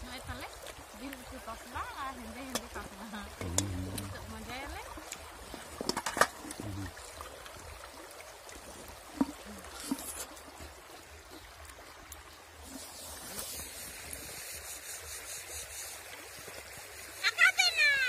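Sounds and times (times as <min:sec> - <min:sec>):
stream trickling over stones: 0:00.0 - 0:18.0.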